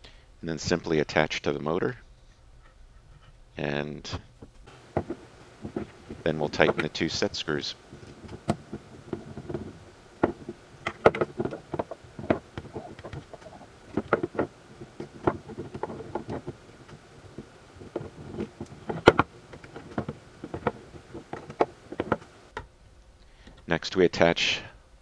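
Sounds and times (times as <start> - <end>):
motor knocking on wooden bench: 4.7 - 22.4.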